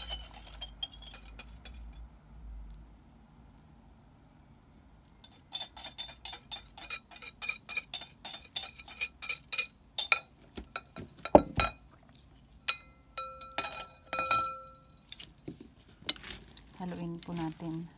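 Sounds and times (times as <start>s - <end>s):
spoon clinking glass bowl: 0.0s - 2.0s, 5.2s - 11.8s, 12.6s - 15.0s.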